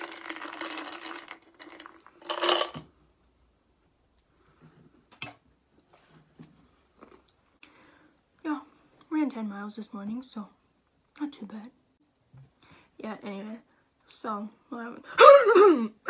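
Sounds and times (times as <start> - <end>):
small items clattering on tabletop: 0.0 - 3.0.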